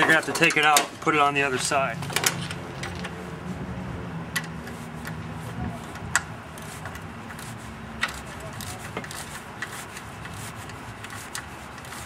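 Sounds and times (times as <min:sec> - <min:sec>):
wrench clicking: 0:05.9 - 0:12.0.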